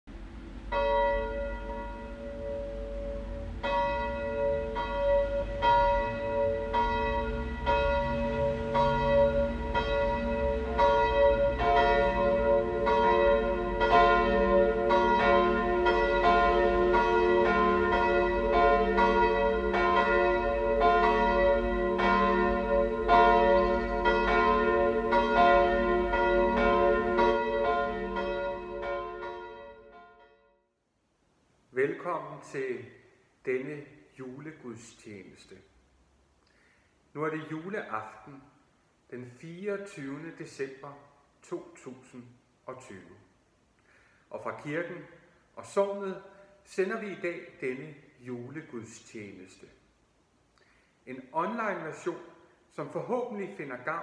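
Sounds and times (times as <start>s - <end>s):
church bells ringing: 0.3s - 30.6s.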